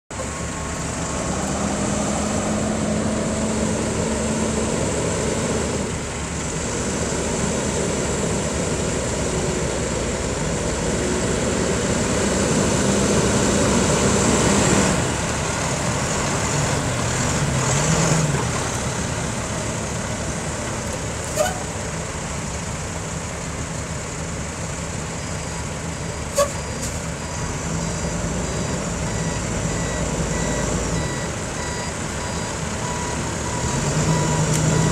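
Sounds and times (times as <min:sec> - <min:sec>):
diesel truck engine droning: 0:00.1 - 0:34.9
reversing beeper: 0:25.2 - 0:34.9.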